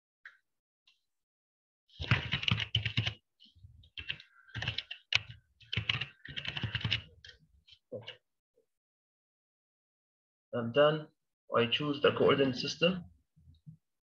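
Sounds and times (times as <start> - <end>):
typing on computer keyboard: 2.0 - 3.2, 3.9 - 7.4.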